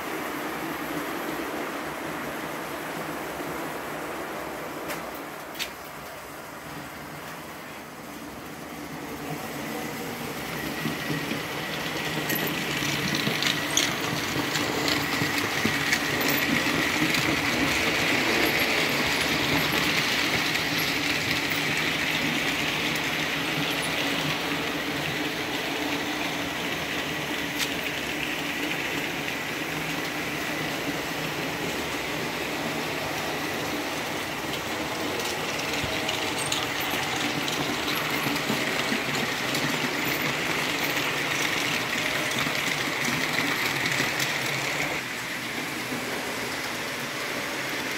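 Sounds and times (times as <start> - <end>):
model train wheels rattling: 10.2 - 47.9.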